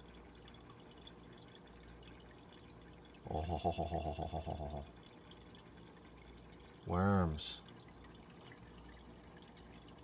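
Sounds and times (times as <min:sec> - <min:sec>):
aquarium air stone bubbling: 0:00.0 - 0:10.0
man's wavering voice: 0:03.2 - 0:04.9.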